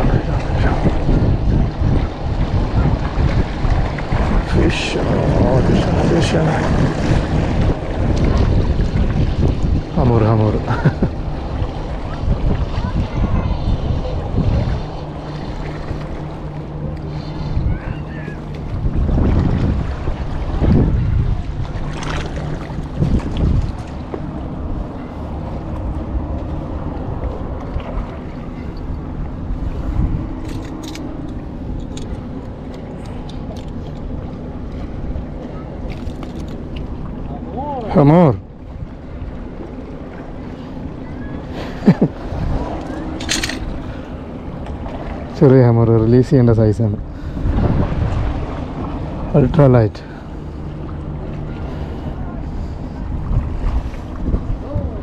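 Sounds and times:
sea water washing against rocks: 0.0 - 25.9
wind rumbling on microphone: 0.0 - 55.0.

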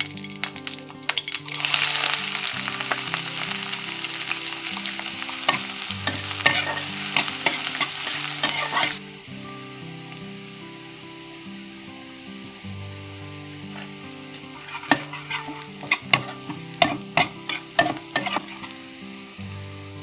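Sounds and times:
onion sizzling in hot oil: 0.0 - 20.0
spatula scraping and tapping pan: 5.5 - 9.0, 13.7 - 18.8.

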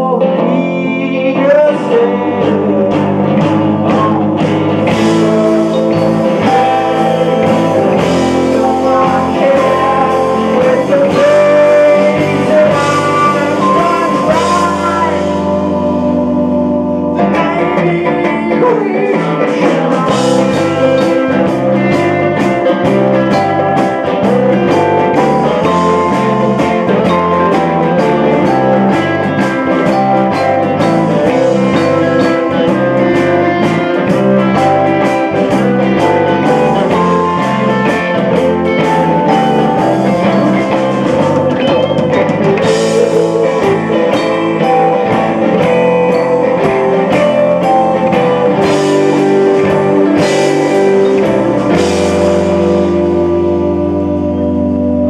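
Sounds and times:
bass guitar: 0.0 - 55.0
electric guitars: 0.0 - 55.0
drum and cymbal hits: 18.6 - 53.7.

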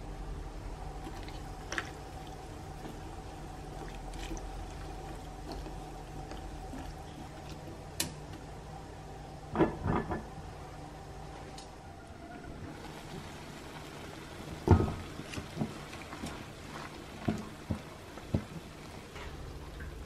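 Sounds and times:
chopsticks stirring liquid in pot: 0.9 - 8.4, 12.8 - 19.2.

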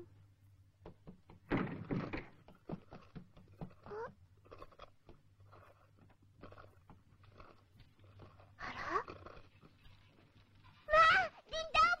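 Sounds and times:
knocks and clatter of work: 0.7 - 4.2.

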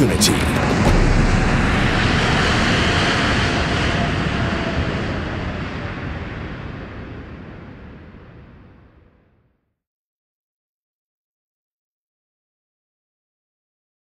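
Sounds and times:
jet aircraft passing: 0.0 - 7.0.

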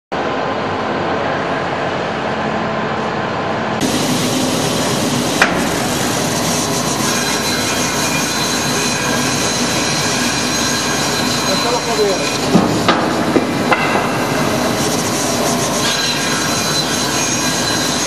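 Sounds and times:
band saw cutting wood: 5.0 - 18.0.

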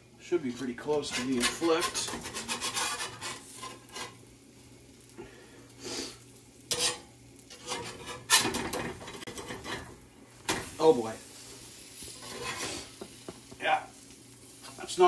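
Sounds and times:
metal spatula scraping skillet: 0.4 - 4.2, 6.6 - 10.9, 11.6 - 13.2.

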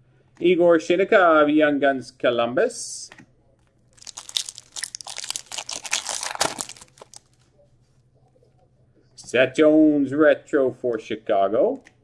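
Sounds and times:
foil wrapper crinkling: 3.9 - 7.4.

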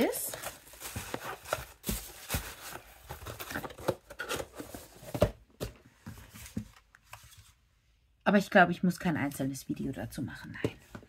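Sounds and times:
plastic packaging crinkling: 0.0 - 4.7.

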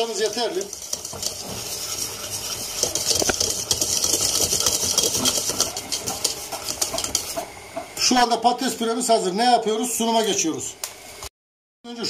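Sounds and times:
wire whisk scraping metal pot: 0.0 - 7.5.

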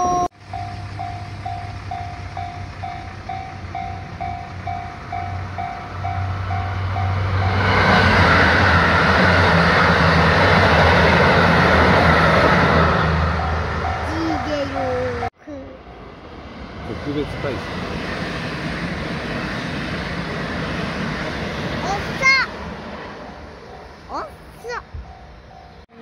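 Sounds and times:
level-crossing warning bell: 0.0 - 17.6, 23.1 - 26.0
train passing: 0.0 - 26.0.

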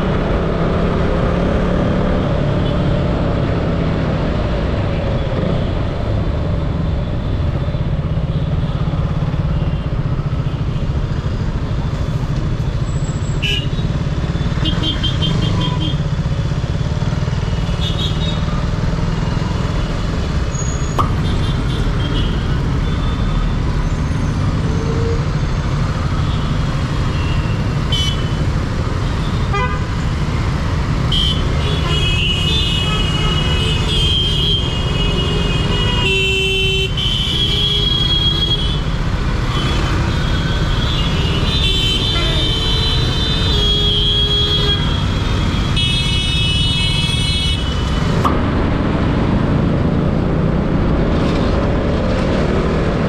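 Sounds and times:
vehicle horns honking: 14.6 - 16.0, 27.1 - 28.4, 29.4 - 30.0, 31.0 - 38.8, 39.5 - 47.9.

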